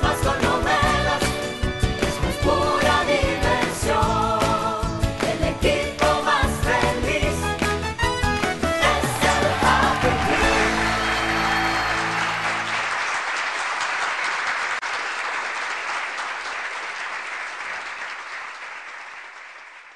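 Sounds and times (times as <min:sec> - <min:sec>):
audience applause: 0:08.8 - 0:19.9.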